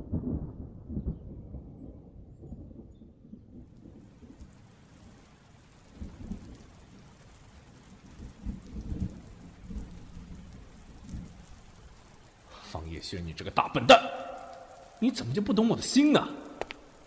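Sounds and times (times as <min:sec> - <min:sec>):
rolling thunder: 0:00.0 - 0:11.8
heavy rain hissing: 0:04.0 - 0:17.0.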